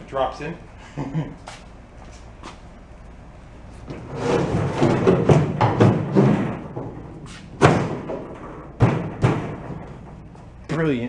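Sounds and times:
wood scraping against metal: 3.9 - 10.0.

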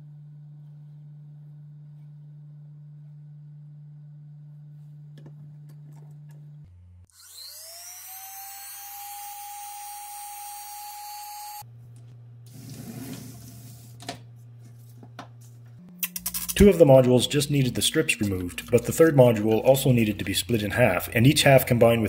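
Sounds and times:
rotary tool whining: 7.1 - 11.6.

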